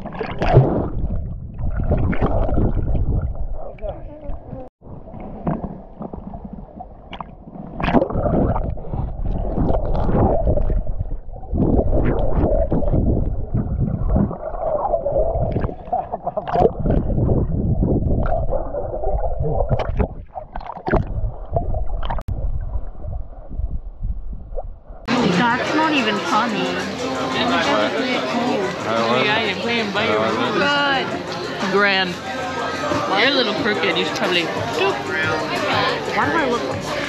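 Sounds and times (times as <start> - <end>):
sharp water splashes: 0.0 - 3.8, 5.1 - 17.4, 18.1 - 23.3
muffled water sloshing and gurgling: 0.0 - 25.1.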